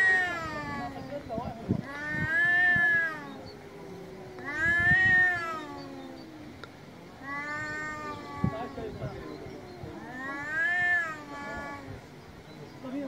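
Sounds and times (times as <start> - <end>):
cat growling moan: 0.0 - 1.2, 1.8 - 6.5, 7.1 - 11.9
cat yowling: 0.0 - 6.5, 7.2 - 12.0.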